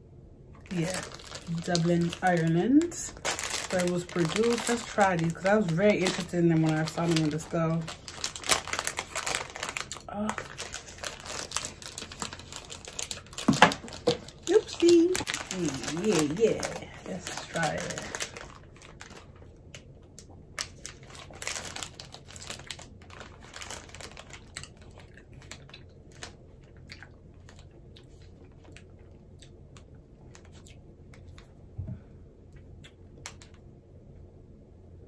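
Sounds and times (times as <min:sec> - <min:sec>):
wrapper crinkling: 0:00.6 - 0:19.9, 0:20.5 - 0:28.8
chewing chocolate: 0:20.1 - 0:31.5.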